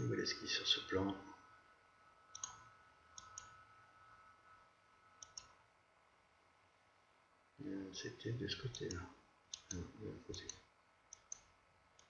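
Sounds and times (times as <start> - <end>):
computer mouse clicks: 2.3 - 3.6, 5.2 - 5.6, 8.7 - 12.0.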